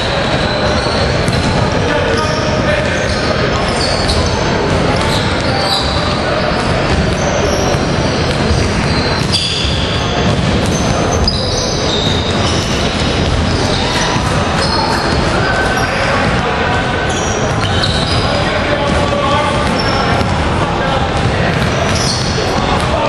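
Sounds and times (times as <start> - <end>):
shoe squeaks: 0.0 - 20.3, 20.9 - 23.0
echoing hall noise: 0.0 - 23.0
voices: 0.0 - 23.0
basketball bouncing on hardwood: 1.3 - 1.6, 6.6 - 11.4.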